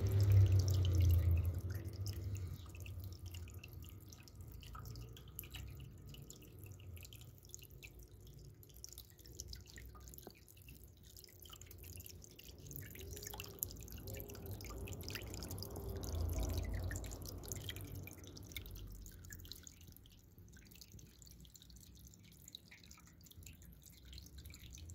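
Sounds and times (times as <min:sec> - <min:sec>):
low rumble: 0:00.0 - 0:03.7
water trickling and dripping: 0:00.0 - 0:24.9.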